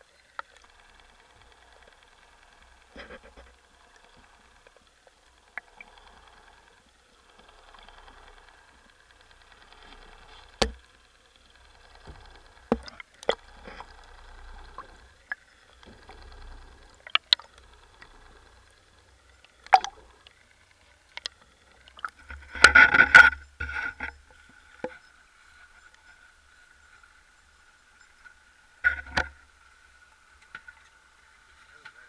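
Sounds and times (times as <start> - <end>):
faint steady whine: 0.0 - 32.0
underwater clicks and knocks: 10.5 - 10.9, 11.9 - 14.0, 17.0 - 18.1, 19.6 - 20.3, 21.1 - 25.0, 28.8 - 29.4
water rushing and splashing: 19.6 - 20.1.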